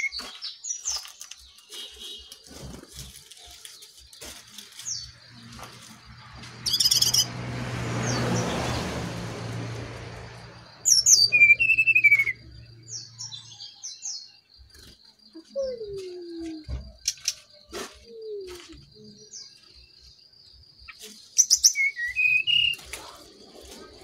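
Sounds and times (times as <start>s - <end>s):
bird calling with high notes: 0.0s - 2.5s, 6.6s - 7.3s, 10.8s - 20.0s, 20.9s - 23.2s.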